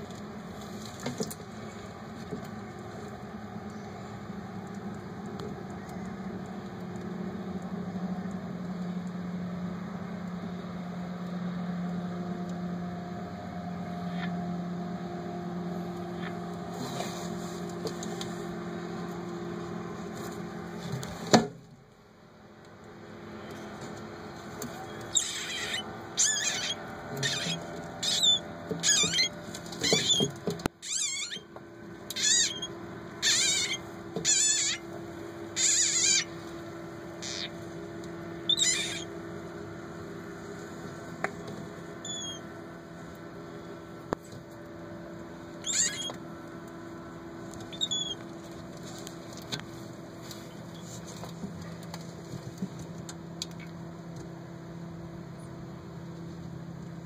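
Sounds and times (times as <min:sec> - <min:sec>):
frog distress cries: 0:24.9 - 0:31.5, 0:32.1 - 0:36.4, 0:37.2 - 0:37.6, 0:38.4 - 0:39.2, 0:42.0 - 0:42.5, 0:45.6 - 0:46.2, 0:47.6 - 0:48.2.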